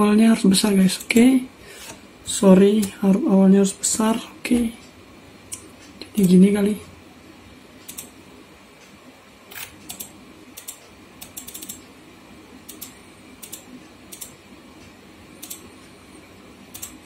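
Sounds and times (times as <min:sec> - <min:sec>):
mouse and keyboard clicks: 0:09.5 - 0:11.8.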